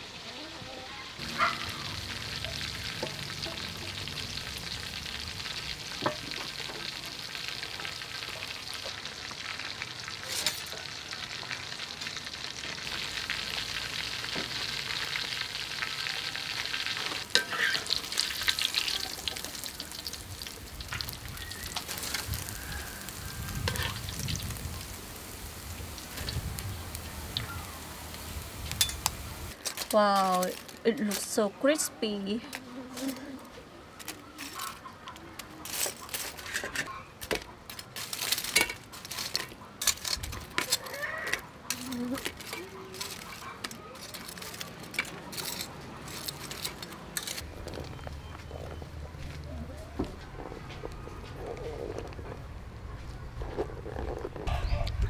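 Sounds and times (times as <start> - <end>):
oil bubbling and sizzling: 0.0 - 31.9, 34.0 - 52.5
stirring clicks and knocks: 34.0 - 49.2.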